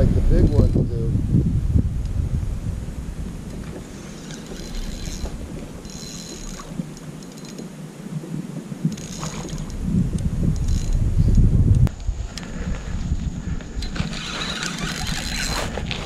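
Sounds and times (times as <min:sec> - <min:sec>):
wind on microphone: 0:00.0 - 0:16.0
fishing reel cranking: 0:04.0 - 0:07.7, 0:08.9 - 0:09.8, 0:10.6 - 0:11.4, 0:13.7 - 0:16.0.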